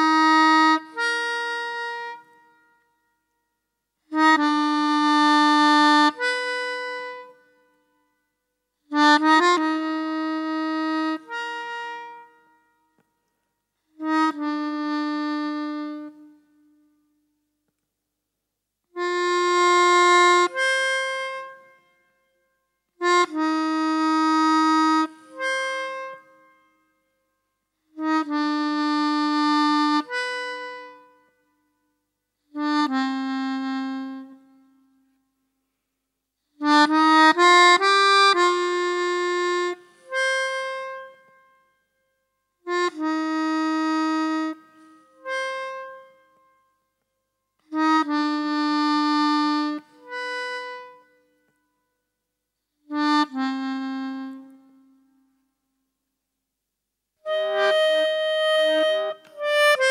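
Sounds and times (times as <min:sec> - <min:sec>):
free-reed instrument held notes: 0:57.2 - 0:59.9.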